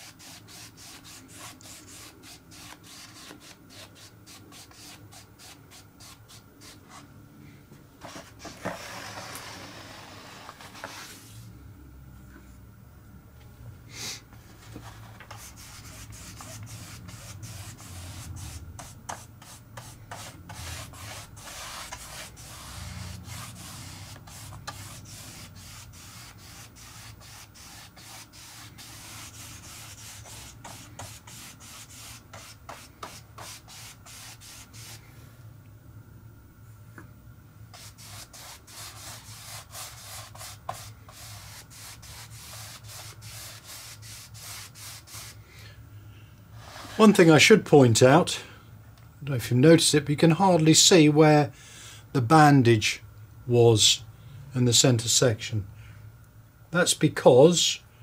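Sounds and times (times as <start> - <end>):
paintbrush brushing paint: 0.0 - 7.0, 14.8 - 35.0, 37.8 - 45.4.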